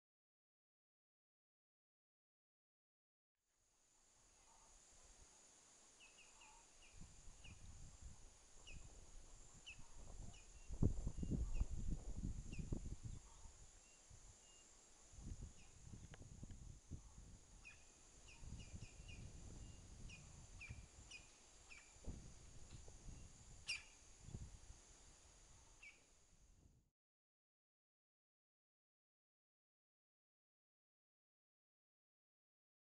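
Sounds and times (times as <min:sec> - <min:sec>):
wind gusting on microphone: 0:06.9 - 0:14.3, 0:15.1 - 0:21.2, 0:22.0 - 0:24.8
high bird chirps: 0:17.6 - 0:22.0, 0:23.6 - 0:24.0.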